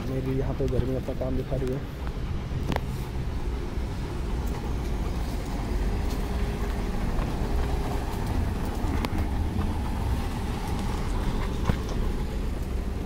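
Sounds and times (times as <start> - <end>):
low outdoor rumble: 0.0 - 13.0.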